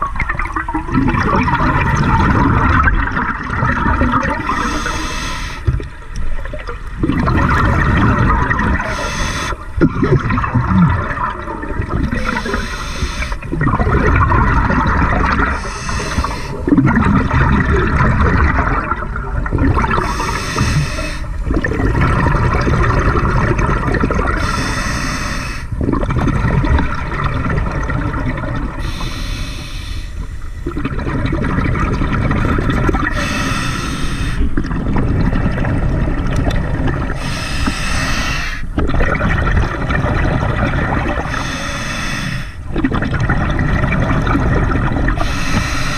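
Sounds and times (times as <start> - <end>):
exhaled bubbles gurgling: 0.0 - 45.9
regulator breathing hiss: 4.5 - 5.7, 8.8 - 9.7, 12.2 - 13.4, 15.6 - 16.6, 20.0 - 21.4, 24.4 - 25.7, 28.8 - 30.6, 33.1 - 34.5, 37.2 - 38.7, 41.3 - 42.6, 45.2 - 45.9.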